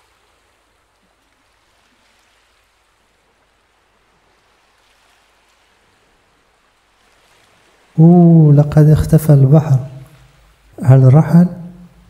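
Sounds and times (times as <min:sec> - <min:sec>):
faint steady hiss: 0:00.0 - 0:12.0
person narrating: 0:08.0 - 0:10.2, 0:10.8 - 0:11.9.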